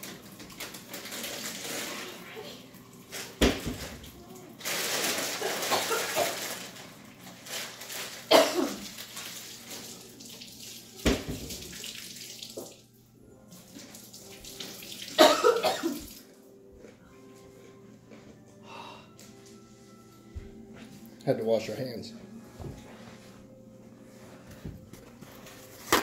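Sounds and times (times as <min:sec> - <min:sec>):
tap water running into sink: 0:08.8 - 0:12.8, 0:13.6 - 0:15.2.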